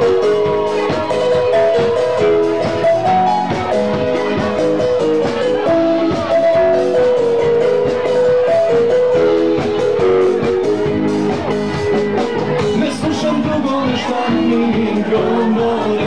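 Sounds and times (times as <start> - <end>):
drum kit beat: 0.0 - 16.0
keyboard melody and chords: 0.0 - 16.0.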